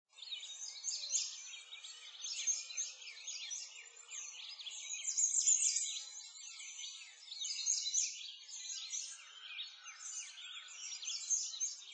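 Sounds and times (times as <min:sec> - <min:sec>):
songbirds chirping and twittering: 0:00.1 - 0:11.9.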